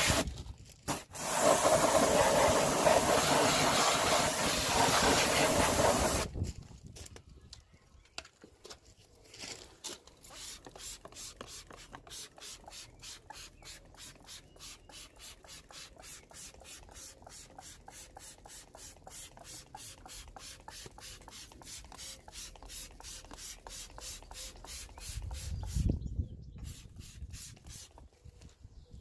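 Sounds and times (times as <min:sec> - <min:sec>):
spray bottle squirts: 0:00.0 - 0:00.3, 0:00.9 - 0:06.3, 0:10.2 - 0:25.9, 0:26.6 - 0:28.0.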